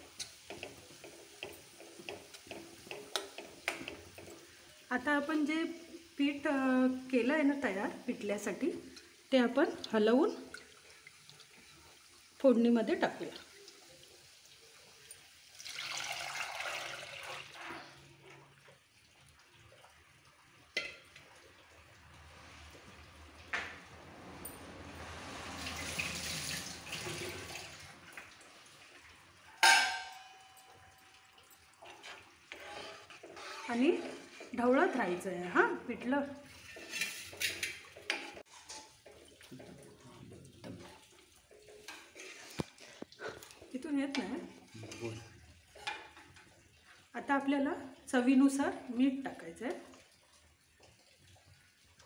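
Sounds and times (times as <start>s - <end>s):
ladle stirring batter: 0.0s - 4.8s, 30.7s - 47.1s
ladle knocking against pan: 29.6s - 30.4s.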